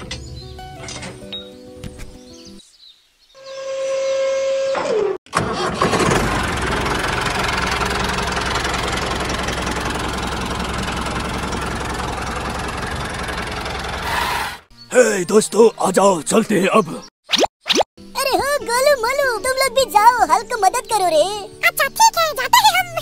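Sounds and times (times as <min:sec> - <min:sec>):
tractor engine rumbling: 0:00.0 - 0:01.3, 0:05.3 - 0:15.0.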